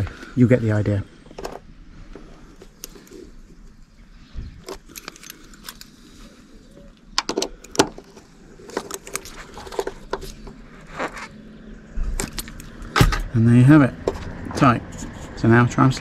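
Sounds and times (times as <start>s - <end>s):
metal keys rattling together: 4.7s - 6.0s.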